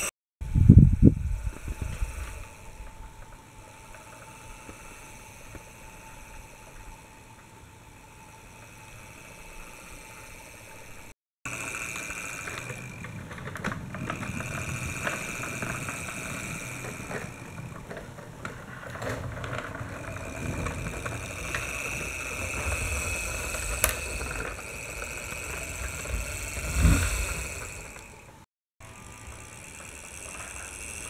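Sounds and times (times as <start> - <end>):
toy tram motor whirring: 0.0 - 31.0
plastic wheels and gears rattling: 11.5 - 31.0.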